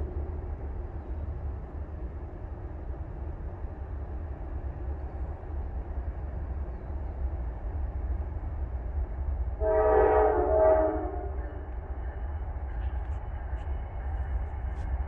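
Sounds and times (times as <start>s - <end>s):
train air horn chord: 9.6s - 11.6s.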